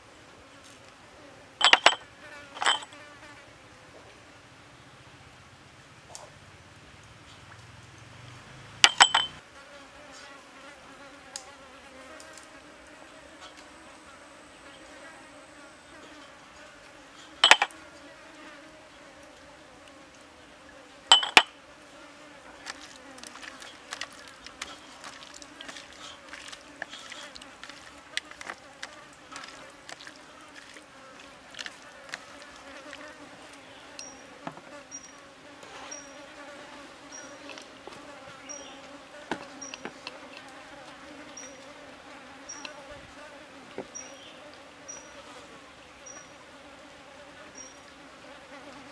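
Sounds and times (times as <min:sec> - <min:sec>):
insects buzzing: 0:01.5 - 0:03.4, 0:08.3 - 0:48.9
ceramic cups clinking down: 0:01.6 - 0:02.0, 0:02.6 - 0:02.9, 0:08.8 - 0:09.4, 0:17.4 - 0:17.7, 0:21.1 - 0:21.5.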